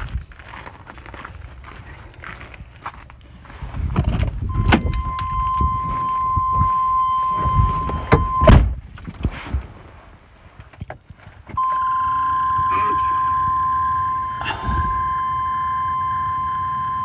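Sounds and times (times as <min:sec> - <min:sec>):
high warning tone: 0:04.5 - 0:08.5, 0:11.6 - 0:17.0
icy truck door crunching open: 0:07.3 - 0:09.7
truck door slamming: 0:07.8 - 0:08.8.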